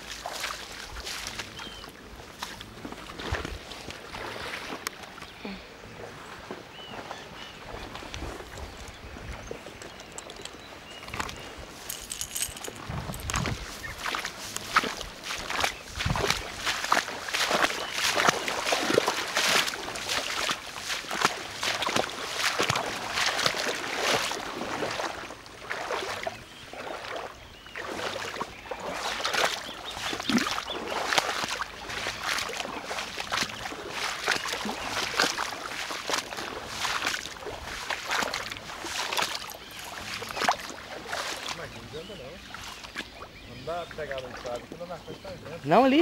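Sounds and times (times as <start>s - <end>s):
rustling through tall grass: 10.7s - 25.1s, 28.0s - 41.6s.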